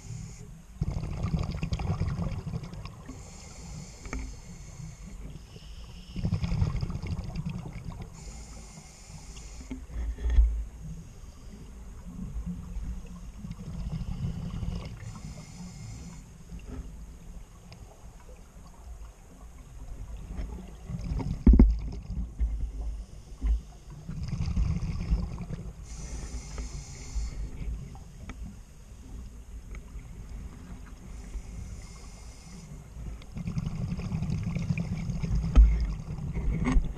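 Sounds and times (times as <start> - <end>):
regulator hiss on inhalation: 0.0 - 1.1, 3.0 - 6.7, 8.1 - 10.0, 13.9 - 16.4, 25.8 - 27.8, 31.1 - 34.2
exhaled bubbles rumbling: 0.8 - 3.3, 6.2 - 8.2, 17.4 - 23.0, 24.0 - 26.0, 33.0 - 36.9.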